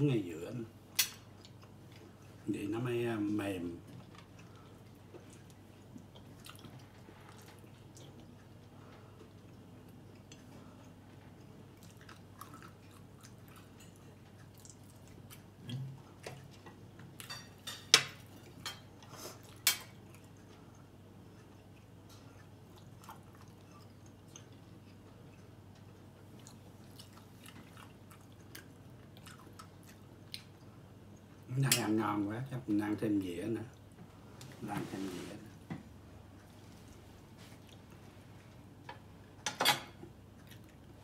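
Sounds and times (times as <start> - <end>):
person chewing food: 1.1 - 2.4, 3.9 - 17.6, 18.2 - 31.5, 36.2 - 39.4, 40.0 - 41.0.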